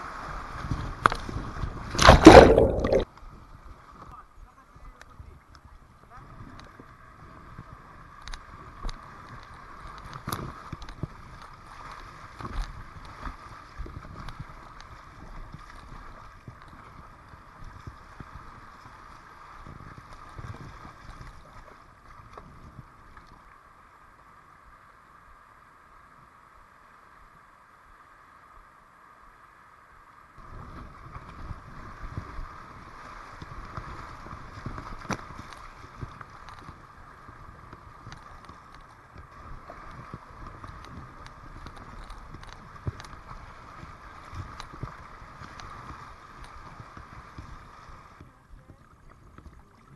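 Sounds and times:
water rushing and splashing: 0.0 - 3.1, 22.5 - 49.9.

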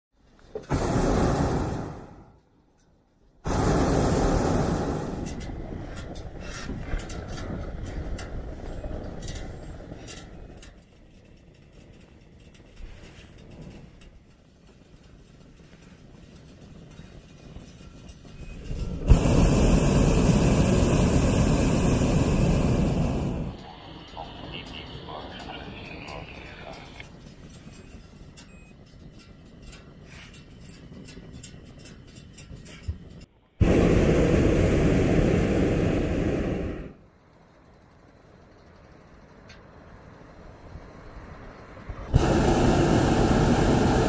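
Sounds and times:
propane burner blast: 0.5 - 2.4, 3.4 - 10.8, 15.8 - 37.0, 40.8 - 44.0
quiet rushing noise: 3.5 - 44.0.

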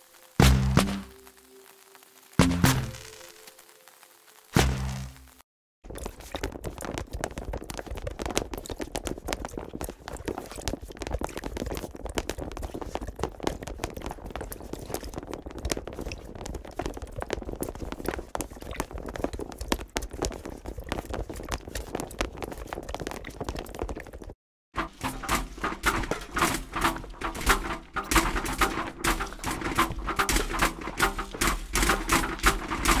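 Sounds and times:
rubber swim fins slapping: 24.8 - 33.0.

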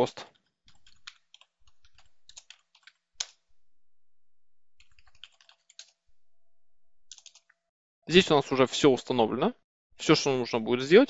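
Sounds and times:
typing on computer keyboard: 0.3 - 3.4, 4.6 - 7.6.

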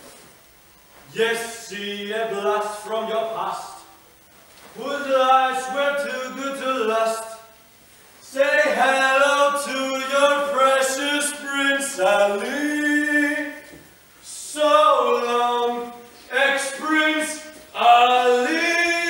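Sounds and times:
men and women singing unaccompanied: 8.3 - 19.0.

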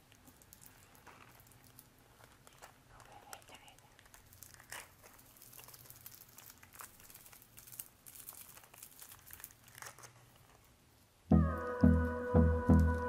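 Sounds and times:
sachets crinkling and tearing: 0.0 - 11.0
background music with beat: 11.3 - 13.0.

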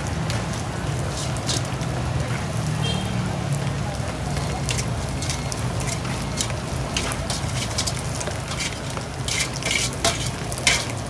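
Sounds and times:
metal spoon scraping a colander: 4.7 - 11.0.

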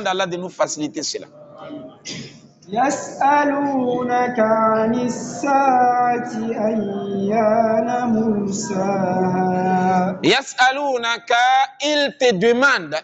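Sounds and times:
man chanting melodic recitation: 2.7 - 13.0.

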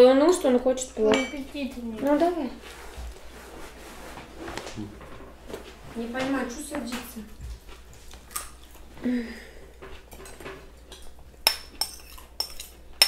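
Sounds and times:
cutlery clinking against plates: 9.8 - 13.0
spoon clinking against bowl: 11.4 - 12.7.

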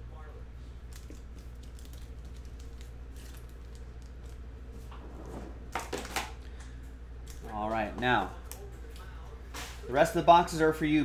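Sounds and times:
plastic sleeve crinkling: 0.9 - 4.8.

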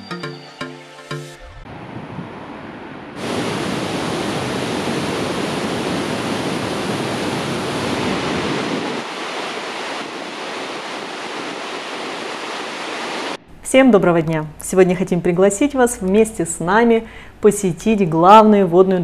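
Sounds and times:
waterfall rushing: 1.8 - 13.4.

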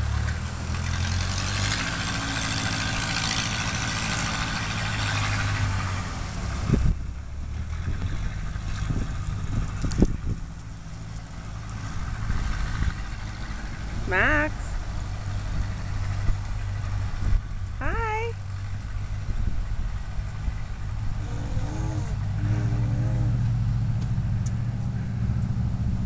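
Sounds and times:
low engine hum: 0.0 - 26.0.

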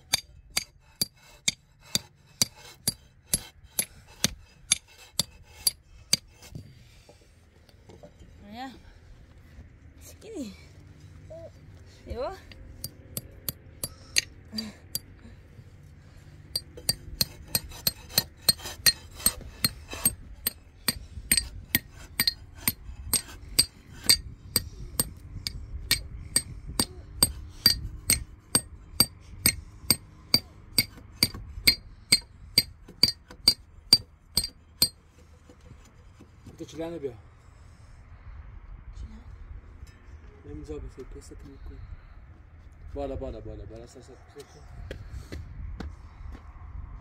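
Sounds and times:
hammer blows on metal: 16.6 - 35.0.

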